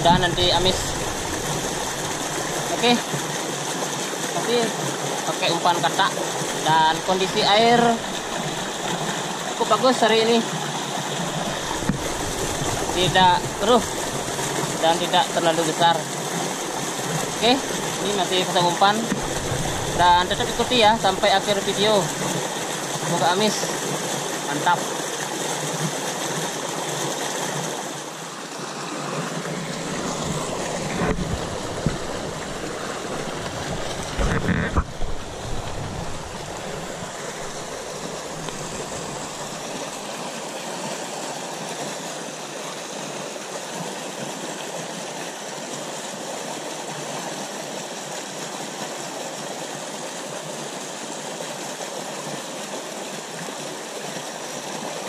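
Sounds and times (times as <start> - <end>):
stream rushing through rocks: 0.0 - 55.0
low thumps: 30.2 - 39.6.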